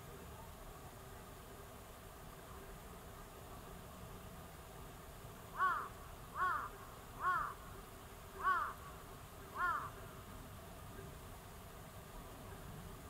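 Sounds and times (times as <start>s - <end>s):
bird calling: 5.6s - 7.6s, 8.4s - 8.8s, 9.6s - 10.0s.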